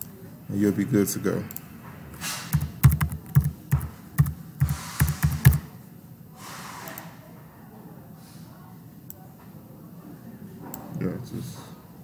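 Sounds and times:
keyboard typing: 2.5 - 5.7.

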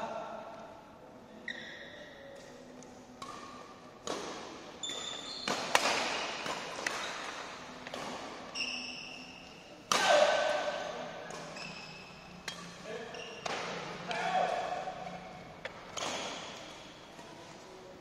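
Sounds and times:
shoes squeaking on court: 1.4 - 2.1, 4.8 - 9.6, 11.3 - 14.0
rackets hitting shuttlecock: 3.2 - 17.4.

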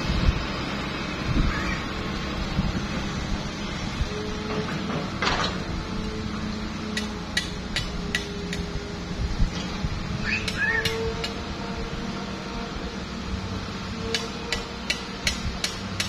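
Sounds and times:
excavator diesel engine under load: 0.0 - 16.0
hydraulic whine: 0.0 - 16.0.

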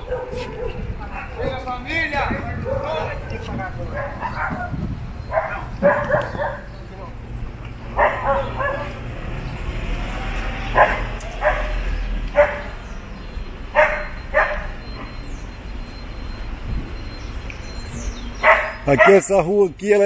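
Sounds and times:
dog barking: 0.0 - 1.6, 2.6 - 3.2, 3.9 - 6.7, 7.9 - 9.0, 10.7 - 12.7, 13.7 - 15.1, 18.4 - 19.3
low rumble of street noise: 0.0 - 20.0.

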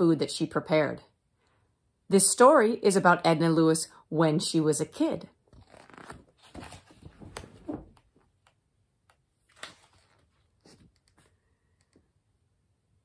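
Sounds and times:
book pages rustling: 5.5 - 11.5.

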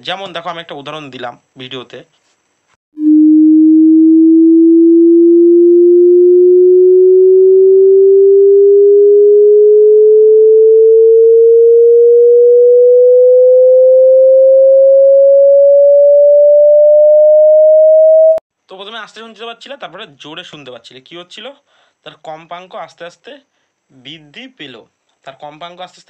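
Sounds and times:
sine-wave tone rising in pitch: 3.0 - 18.4.

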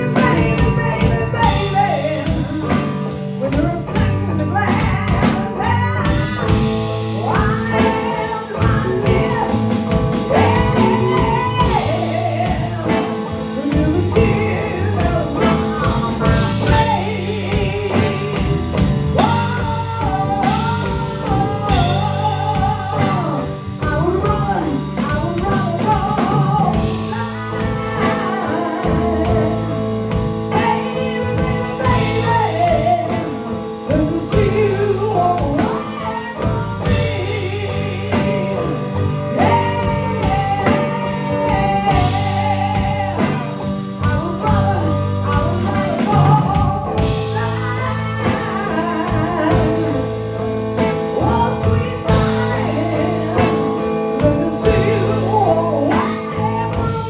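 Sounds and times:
blues band playing: 0.0 - 57.0
woman singing: 0.0 - 57.0.

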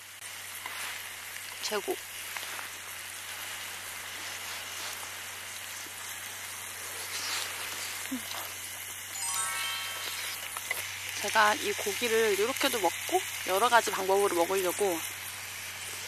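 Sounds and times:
meat sizzling on a grill: 0.0 - 16.0
tinkling chime: 9.1 - 10.6.

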